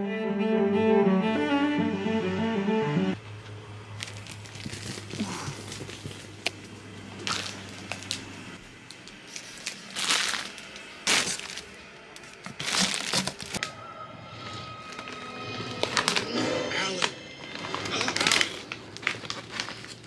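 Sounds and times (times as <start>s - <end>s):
plastic bag crinkling and crackling: 3.8s - 13.6s, 17.4s - 20.0s.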